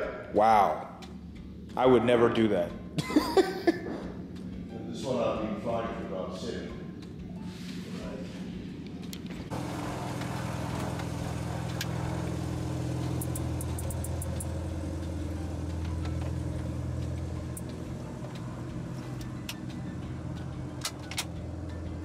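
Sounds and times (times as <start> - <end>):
light aircraft piston engine: 7.2 - 22.0
sharp clicks: 13.1 - 14.5.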